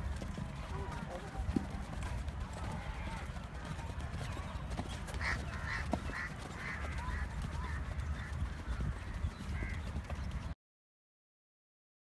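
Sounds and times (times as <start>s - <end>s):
wind rumble on microphone: 6.2s - 10.6s.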